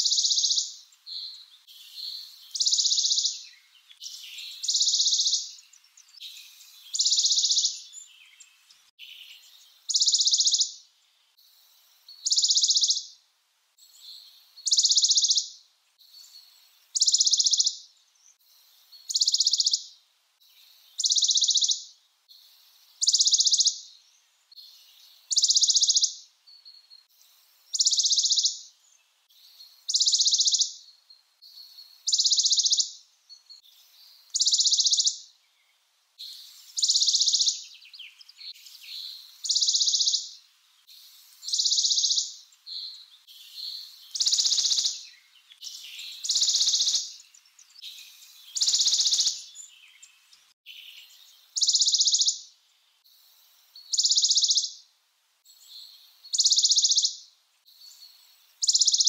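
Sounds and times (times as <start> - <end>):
warbler singing high trill: 0.0 - 6.3, 6.9 - 10.8, 12.2 - 13.2, 17.0 - 17.9, 21.0 - 21.9, 23.0 - 24.0, 24.8 - 26.9, 27.7 - 28.7, 29.9 - 30.9, 31.8 - 35.3, 36.2 - 40.4, 41.4 - 52.5, 53.8 - 54.8, 55.7 - 59.0.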